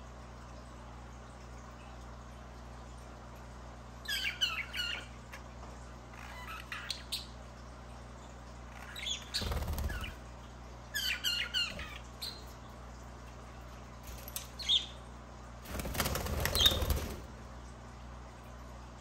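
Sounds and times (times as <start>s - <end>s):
birds fluttering wings: 9.4s - 10.2s, 15.6s - 17.4s.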